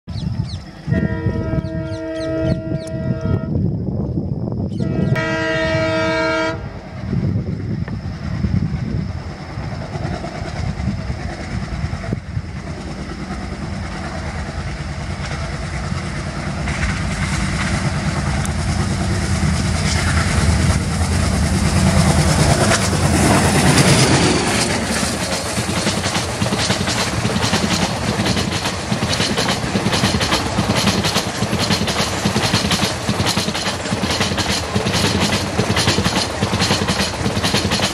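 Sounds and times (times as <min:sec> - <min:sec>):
train engine and rail rumble: 0:00.0 - 0:37.9
diesel locomotive horn: 0:00.8 - 0:03.7, 0:04.7 - 0:06.8
coaches clattering over rail joints: 0:18.0 - 0:37.9.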